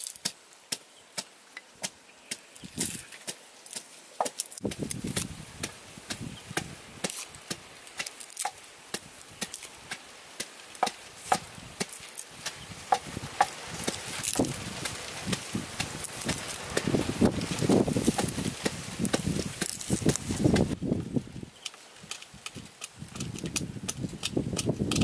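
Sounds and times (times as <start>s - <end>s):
garlic skin crackling: 0.0s - 20.8s.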